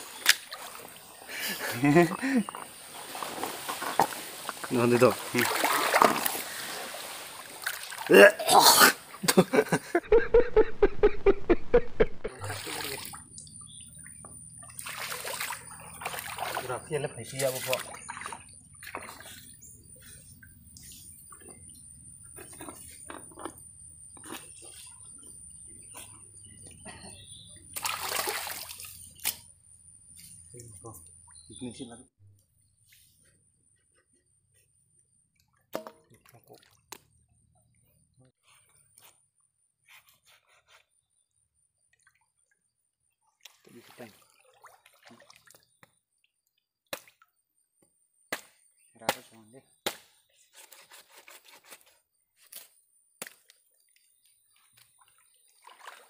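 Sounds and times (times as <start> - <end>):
river water splashing: 0.0 - 9.6, 12.3 - 19.8, 27.7 - 29.4, 43.4 - 45.8, 53.2 - 56.0.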